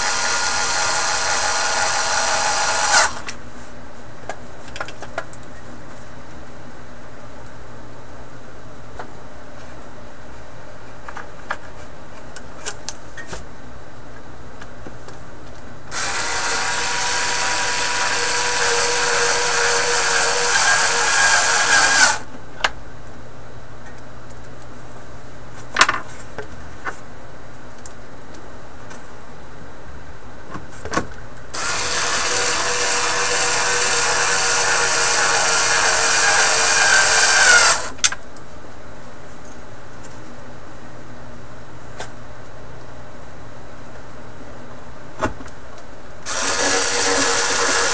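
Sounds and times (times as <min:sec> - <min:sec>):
power tool running: 0:00.0 - 0:03.3, 0:15.9 - 0:22.2, 0:31.6 - 0:37.9, 0:46.2 - 0:47.9.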